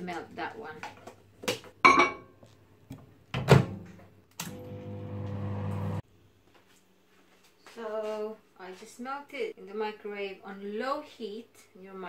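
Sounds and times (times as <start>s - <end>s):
microwave humming: 4.4s - 6.0s.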